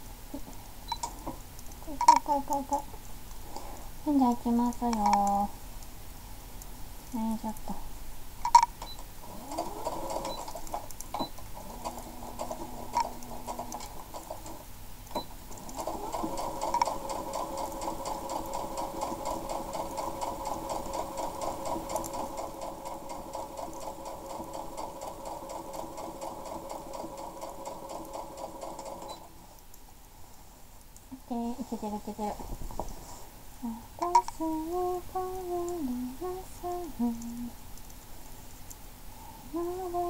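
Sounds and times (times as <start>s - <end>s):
sewing machine stitching: 9.2s - 29.3s.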